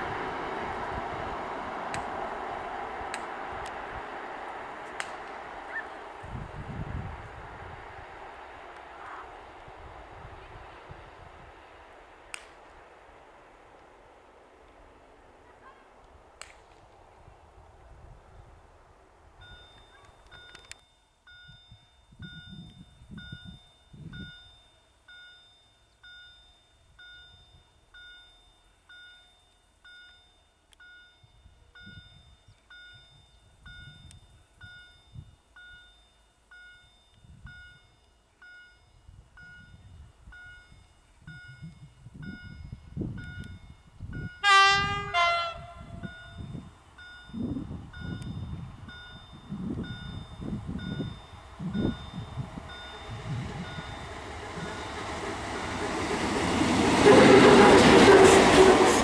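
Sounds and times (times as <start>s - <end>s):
train wheels rumbling on rail: 0.0s - 24.5s, 36.5s - 59.0s
locomotive horn: 44.4s - 46.4s, 57.0s - 59.0s
electronic warning chime: 46.0s - 55.2s.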